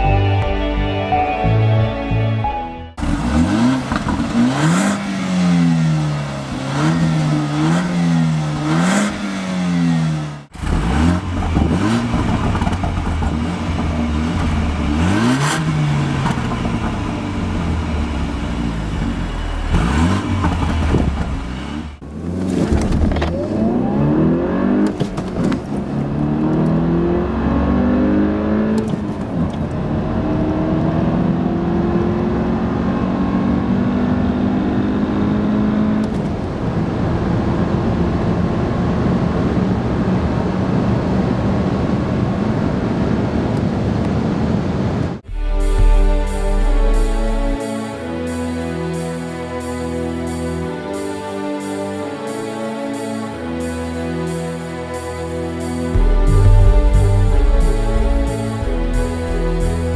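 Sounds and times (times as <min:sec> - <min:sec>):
car engine revving and accelerating: 0:03.0 - 0:44.5, 0:55.8 - 0:59.9.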